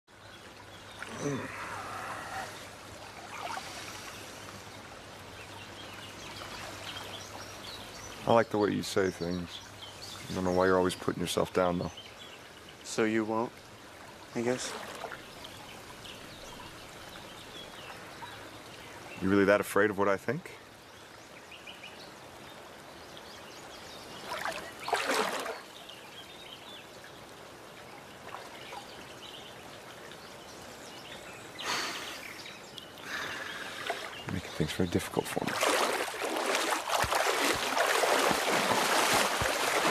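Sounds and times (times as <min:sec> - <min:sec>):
steady hiss of water or leaves: 0:00.1 - 0:39.9
faint bird chirps: 0:00.2 - 0:04.7.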